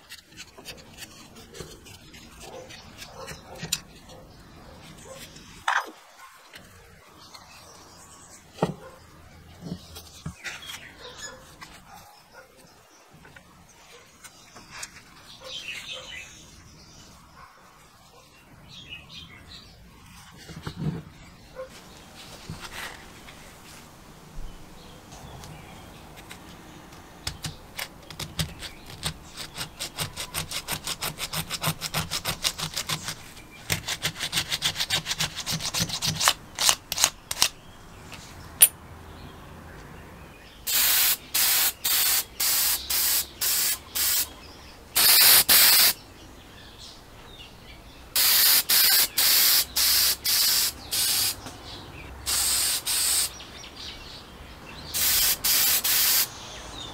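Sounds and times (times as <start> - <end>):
aerosol spray can hissing: 40.7 - 44.3, 45.0 - 46.0, 48.2 - 51.4, 52.3 - 53.4, 55.0 - 56.3.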